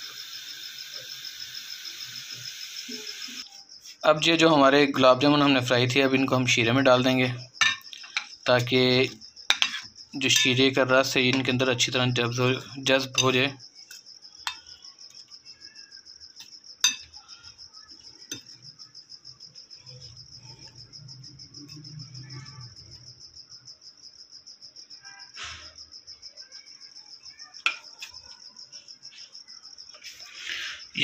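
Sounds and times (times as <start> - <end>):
cricket chirping: 0.0 - 31.0
metal spoon clinking on ceramic bowl: 7.6 - 8.3, 9.5 - 10.6, 13.0 - 14.7, 16.8 - 17.2, 18.3 - 18.6, 27.6 - 27.9.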